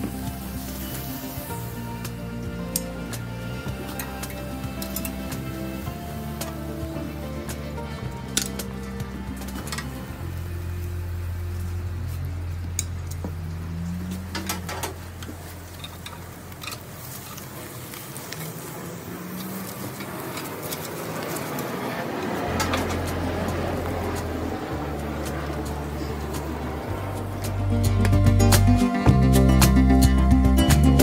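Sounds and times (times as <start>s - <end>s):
background music with bass line: 0.0s - 15.8s, 22.5s - 31.0s
spatula and tongs clinking on grill: 3.8s - 6.8s, 8.2s - 10.0s, 14.3s - 18.3s.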